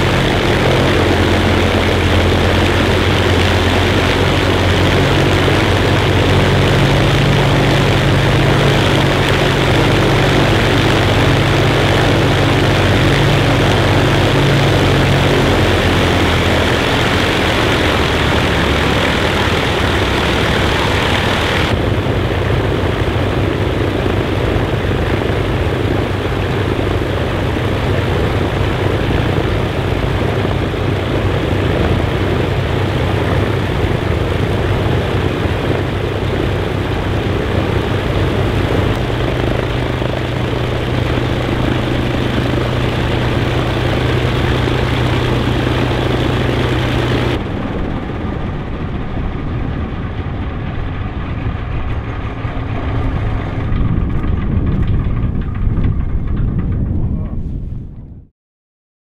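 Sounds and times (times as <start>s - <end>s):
propeller engines droning: 0.0s - 57.4s
low hum: 0.0s - 58.3s.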